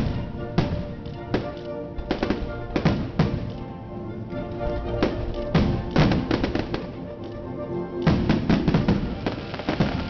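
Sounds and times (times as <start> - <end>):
fireworks bangs and crackles: 0.0 - 3.7, 4.7 - 7.0, 8.0 - 10.0
music: 0.0 - 10.0.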